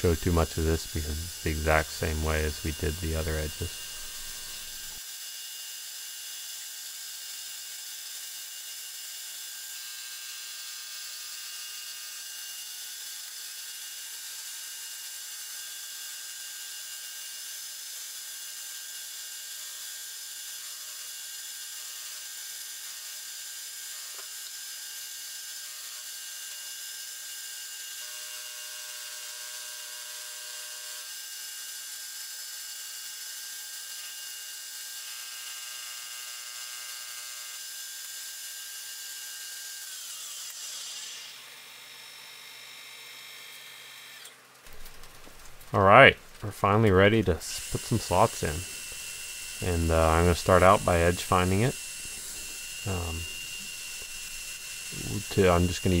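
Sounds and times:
milling machine whine: 0.0 - 5.0, 46.4 - 56.0.

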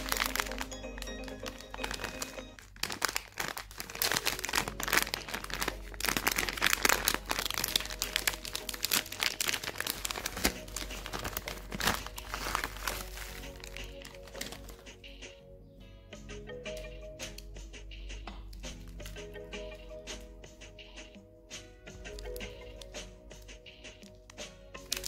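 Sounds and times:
plastic snack bag crackling: 0.0 - 14.9, 22.1 - 22.9, 24.8 - 25.0
background music: 0.0 - 25.0.

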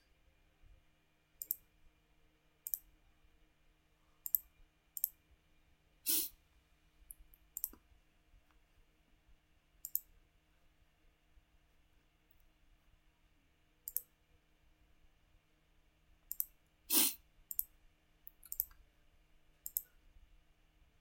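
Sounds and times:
faint steady hum: 0.0 - 21.0
computer mouse clicking: 1.4 - 1.6, 2.6 - 2.9, 4.2 - 5.2, 7.5 - 7.8, 9.8 - 10.1, 13.9 - 14.1, 16.3 - 16.5, 17.5 - 17.7, 18.3 - 18.8, 19.6 - 19.9.

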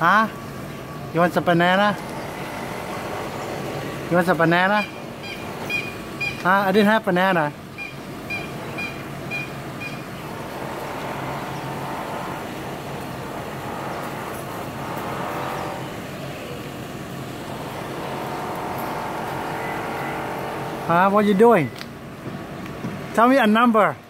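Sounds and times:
low engine hum: 0.0 - 23.2
road traffic noise: 0.0 - 24.0
short high beeps: 4.7 - 6.5, 7.8 - 10.1.

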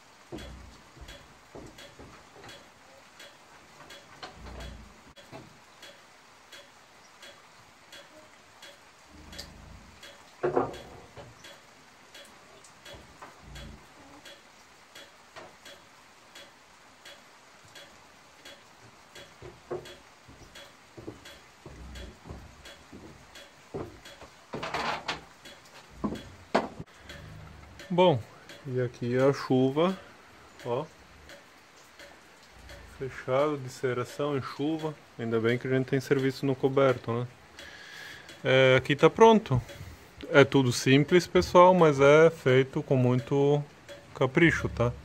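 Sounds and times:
light ticking: 0.0 - 45.0
footsteps on wooden floor: 0.3 - 2.7, 18.8 - 26.9
wooden clunk: 10.4 - 11.4, 26.0 - 26.8.

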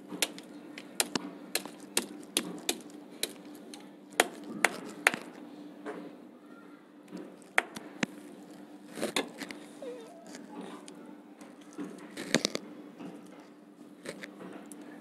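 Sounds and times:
ginger being crushed: 0.0 - 5.4, 7.2 - 10.5, 11.5 - 13.4, 14.0 - 14.8.

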